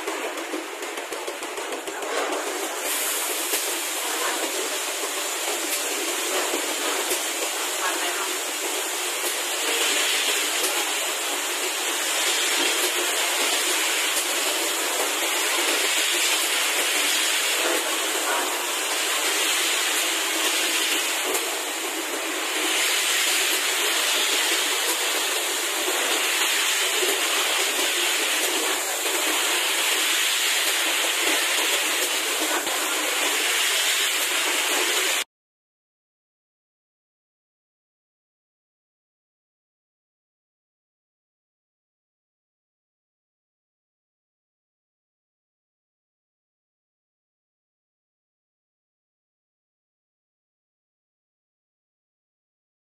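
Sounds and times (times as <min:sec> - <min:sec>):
water spray jets hissing: 0:00.0 - 0:35.2.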